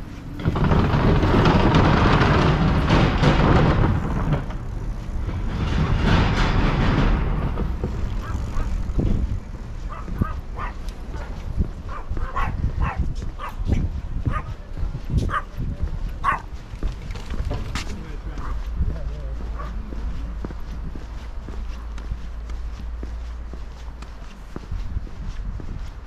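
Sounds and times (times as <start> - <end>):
wind buffeting microphone: 0.0 - 26.0
small dog yipping: 16.2 - 16.4.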